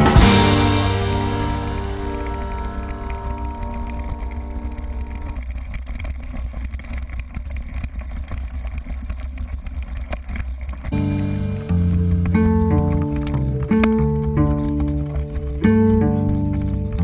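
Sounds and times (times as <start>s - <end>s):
background music: 0.0s - 5.3s, 11.0s - 17.0s
bike rattling over bumps: 0.0s - 17.0s
wind and tyre rumble: 0.0s - 17.0s.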